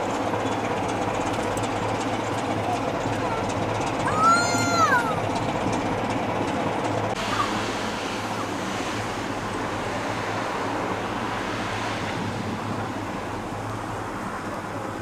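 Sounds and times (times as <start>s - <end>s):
road traffic noise: 0.0s - 15.0s
wind on microphone: 7.2s - 15.0s.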